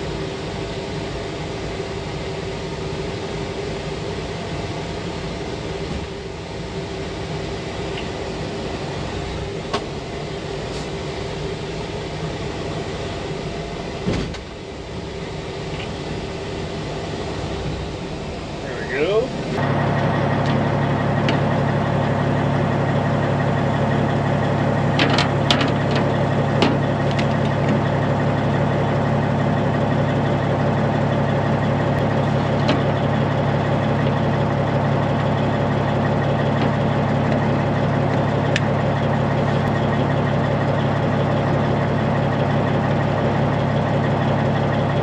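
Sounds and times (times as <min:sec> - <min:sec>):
diesel truck engine idling: 0:00.0 - 0:45.0
sharp clicks and knocks: 0:25.0 - 0:27.8.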